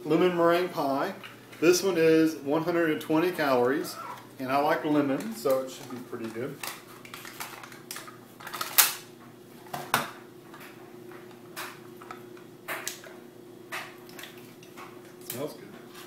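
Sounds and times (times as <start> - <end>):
low steady hum: 0.0 - 16.0
plastic cups and cardboard crinkling: 3.3 - 9.0.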